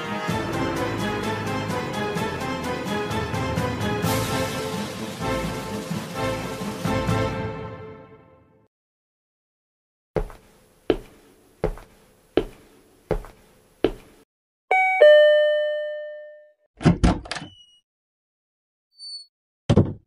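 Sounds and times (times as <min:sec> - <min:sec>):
two-tone doorbell chime: 0:14.7 - 0:16.6
thuds and clicks: 0:19.7 - 0:20.0.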